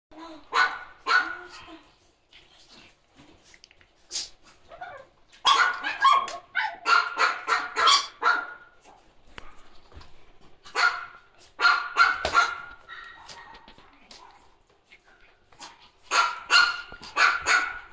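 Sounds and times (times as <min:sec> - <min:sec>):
dogs barking: 0:00.5 - 0:01.5, 0:05.4 - 0:09.0, 0:10.6 - 0:14.6, 0:15.6 - 0:17.9.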